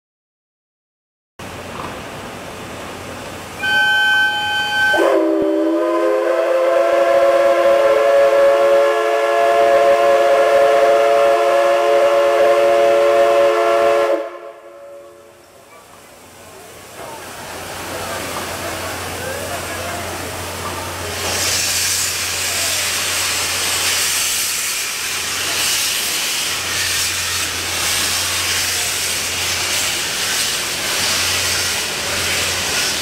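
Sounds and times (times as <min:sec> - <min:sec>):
short high toot: 0:03.6 - 0:05.4
chord steam whistle blast: 0:03.6 - 0:15.4
steam hissing: 0:15.1 - 0:33.0.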